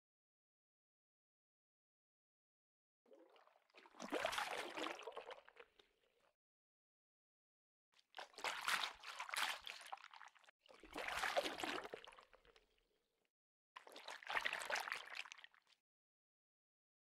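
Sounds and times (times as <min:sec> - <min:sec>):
water splashing and pouring: 0:03.3 - 0:05.4, 0:10.8 - 0:12.0.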